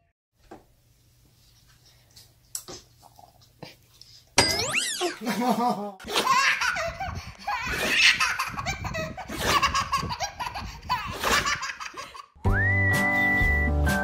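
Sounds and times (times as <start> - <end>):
baby laughing: 4.7 - 12.4
music with whistled melody: 12.4 - 14.0.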